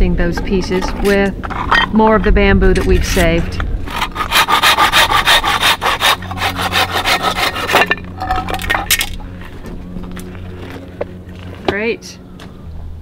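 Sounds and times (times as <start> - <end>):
hand saw cutting bamboo: 3.0 - 8.0.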